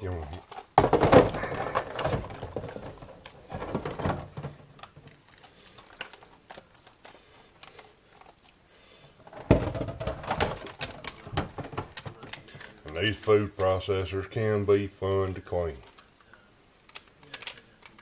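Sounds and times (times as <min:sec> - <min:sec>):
plastic dishes clattering in sink: 0:00.3 - 0:06.2, 0:09.2 - 0:12.8.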